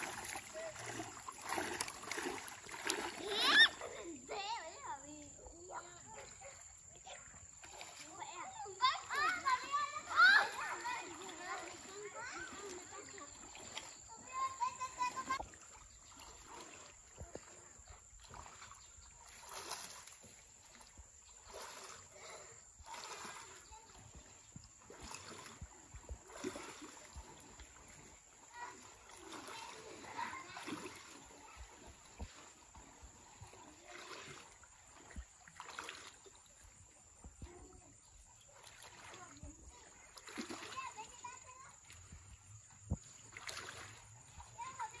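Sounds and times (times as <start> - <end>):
water sloshing and splashing: 0.0 - 45.0.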